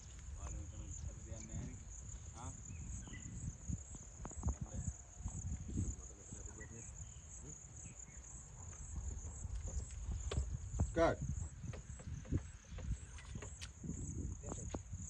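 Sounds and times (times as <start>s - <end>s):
insects chirring: 0.0s - 15.0s
faint knocks: 11.5s - 13.7s.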